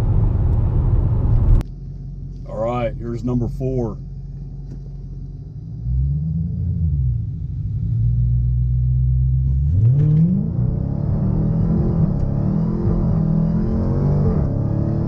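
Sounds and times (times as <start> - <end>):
car engine revving: 5.6 - 15.0.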